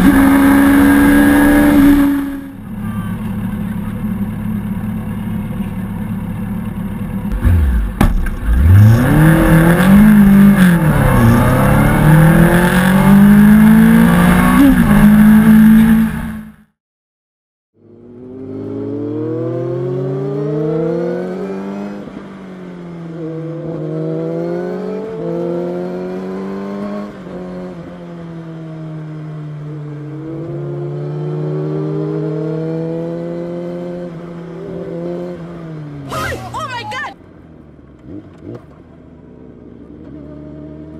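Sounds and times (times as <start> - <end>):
motorcycle engine revving: 0.0 - 16.7, 17.8 - 36.2.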